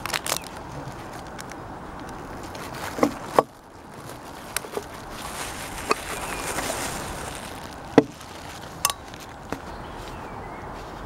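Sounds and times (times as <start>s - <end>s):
soft rustling hiss: 0.0s - 11.0s.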